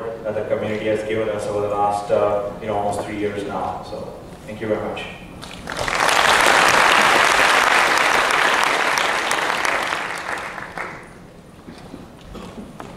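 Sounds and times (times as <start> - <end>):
audience applauding: 5.4 - 11.2.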